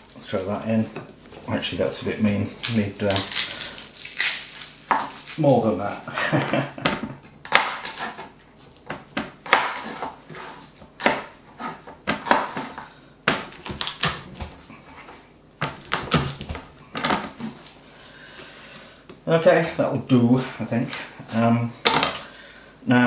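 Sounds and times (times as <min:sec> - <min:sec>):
garlic skins rustling: 0:00.0 - 0:06.3, 0:13.5 - 0:18.9.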